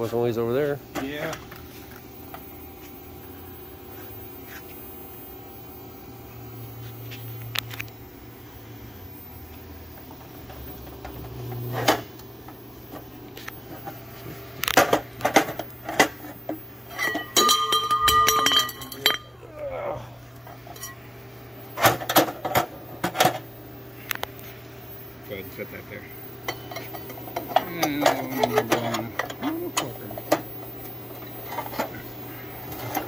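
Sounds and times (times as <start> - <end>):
low steady hum: 0.0 - 33.0
metal ringing: 16.9 - 19.4.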